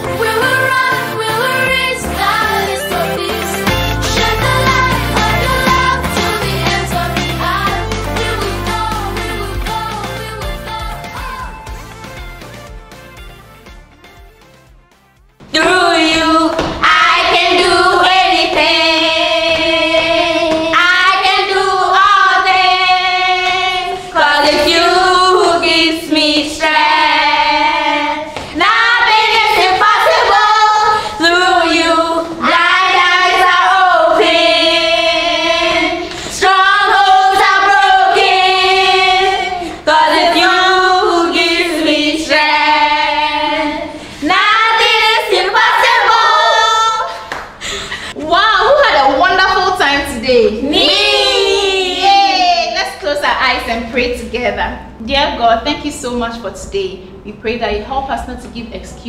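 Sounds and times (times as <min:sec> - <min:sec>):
women and children singing: 0:00.0 - 0:11.6, 0:15.5 - 0:47.2.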